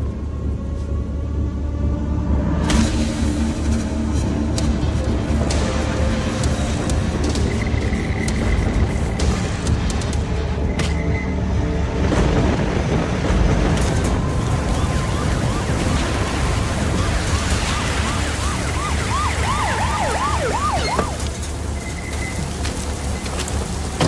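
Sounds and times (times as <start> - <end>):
heavy rain pouring: 2.6 - 24.0
police siren yelping: 14.4 - 22.0.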